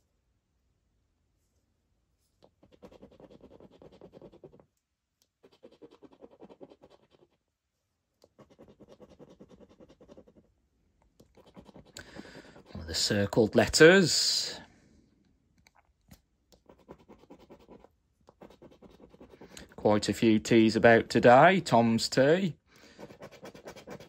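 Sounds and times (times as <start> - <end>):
coin scratching a scratchcard: 2.6 - 4.6, 5.4 - 7.4, 8.3 - 10.5, 11.3 - 12.8, 16.6 - 19.8, 23.0 - 24.0.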